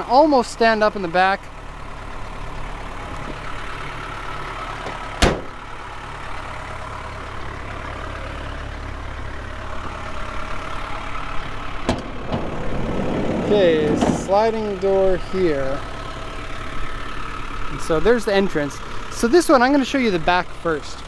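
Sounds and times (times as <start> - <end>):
diesel engine idling: 0.0 - 21.0
van door slamming: 4.8 - 5.6, 11.8 - 14.6.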